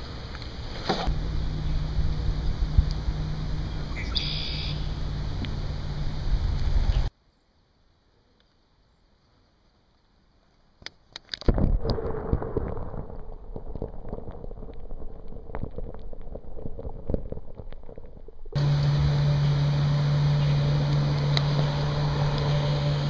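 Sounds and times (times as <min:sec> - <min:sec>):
loud steady noise with hum: 0:00.0 - 0:07.1, 0:18.6 - 0:23.0
water sloshing and gurgling: 0:11.4 - 0:23.0.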